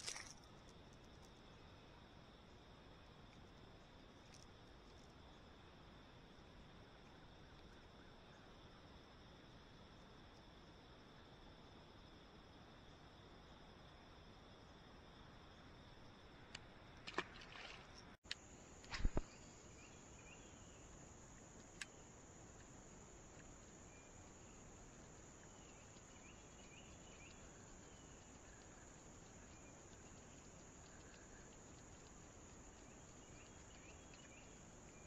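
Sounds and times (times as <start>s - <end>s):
faint outdoor hiss: 0.0s - 35.0s
insect chirping: 0.0s - 35.0s
faint click: 21.6s - 22.0s.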